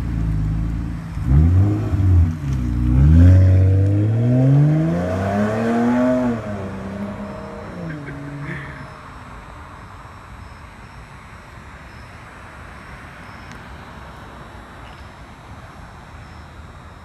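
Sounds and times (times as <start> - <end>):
street rumble and hiss: 0.0 - 17.0
vehicle passing by: 1.2 - 9.0.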